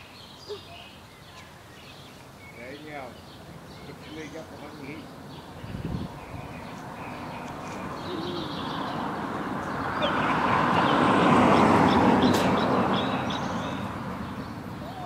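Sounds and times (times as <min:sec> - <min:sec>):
car driving past: 0:05.9 - 0:15.0.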